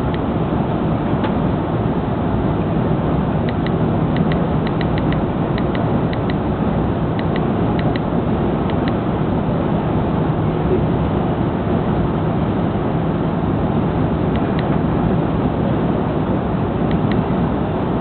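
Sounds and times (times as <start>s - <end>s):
airplane cabin rumble: 0.0s - 18.0s
small clicks: 3.5s - 6.4s, 7.2s - 8.1s.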